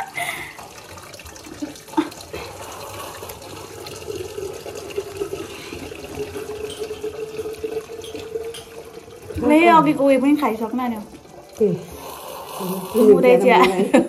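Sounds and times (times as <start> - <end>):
tap running into sink: 5.9 - 10.2.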